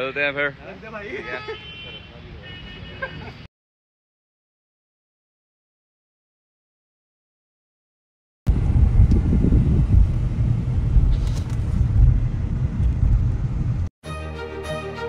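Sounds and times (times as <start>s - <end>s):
car cabin road rumble: 8.5s - 13.9s
background music: 14.0s - 15.0s.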